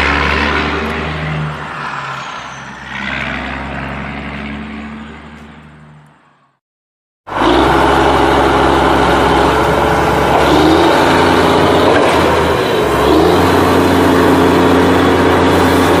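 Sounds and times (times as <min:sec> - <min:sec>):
heavy truck engine running: 0:07.3 - 0:16.0.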